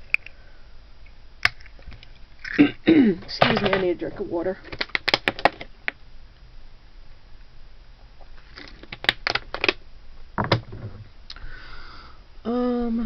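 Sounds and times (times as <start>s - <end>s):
small objects clicking and tapping: 4.6s - 6.0s, 8.5s - 9.8s.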